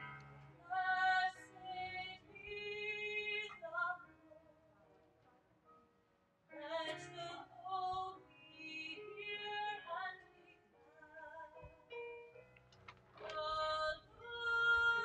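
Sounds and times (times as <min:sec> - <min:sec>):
woman singing a hymn: 0:00.6 - 0:04.1, 0:06.5 - 0:11.7, 0:13.2 - 0:15.0.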